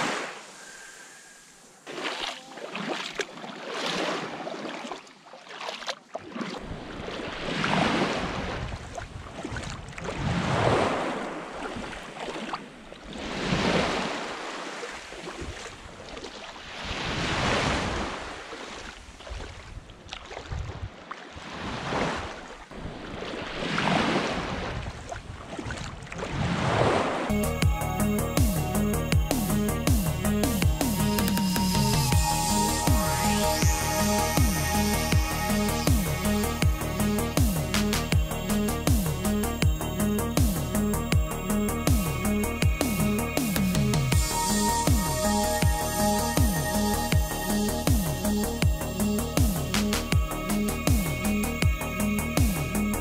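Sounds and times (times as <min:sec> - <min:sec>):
waves breaking on beach: 0:00.0 - 0:27.3
wind rumble on microphone: 0:06.6 - 0:11.9, 0:19.0 - 0:27.3.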